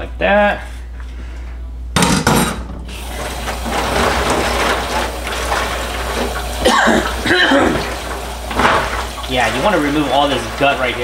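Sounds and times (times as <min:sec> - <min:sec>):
faucet running into a sink: 0:02.9 - 0:11.0
water splashing: 0:02.9 - 0:11.0.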